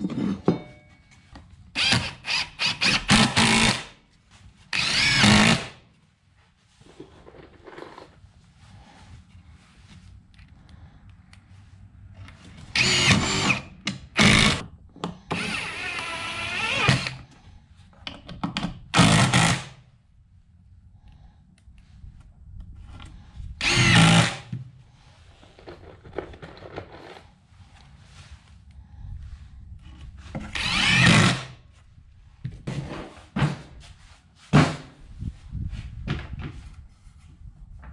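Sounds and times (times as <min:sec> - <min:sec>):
cordless driver driving screws: 0:04.8 - 0:05.7, 0:12.7 - 0:14.6, 0:23.6 - 0:24.4, 0:30.5 - 0:31.5.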